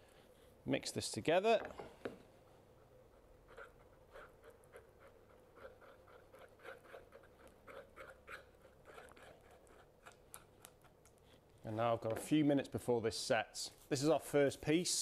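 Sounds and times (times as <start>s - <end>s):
stick scraping while stirring: 3.5s - 11.5s.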